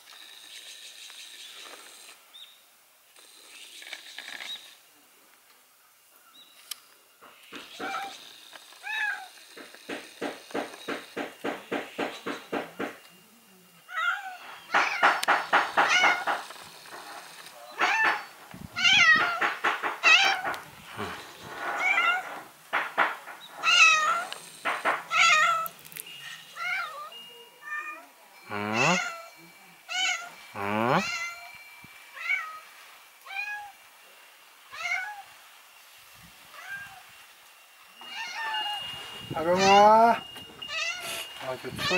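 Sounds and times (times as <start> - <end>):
cat meowing: 13.9 - 15.0, 17.8 - 19.4, 23.6 - 24.3, 25.1 - 25.7, 26.6 - 29.3, 29.9 - 30.4, 34.7 - 35.3, 38.0 - 38.8, 40.7 - 41.2.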